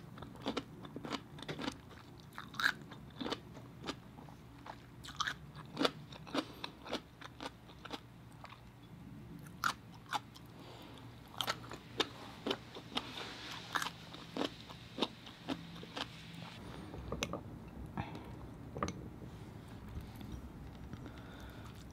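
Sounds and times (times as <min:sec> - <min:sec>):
crunchy chewing: 0:00.2 - 0:08.7, 0:09.4 - 0:16.6.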